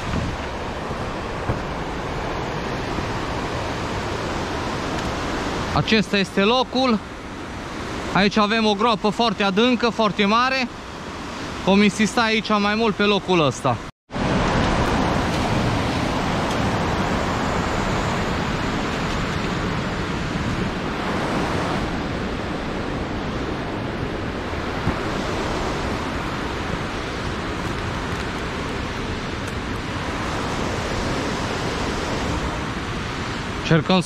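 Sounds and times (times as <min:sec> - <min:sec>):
water rushing over weir: 0:00.0 - 0:34.0.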